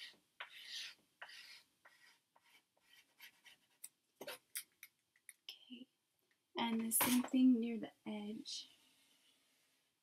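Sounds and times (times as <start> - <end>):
chalk pastel scratching on paper: 0.0 - 3.8.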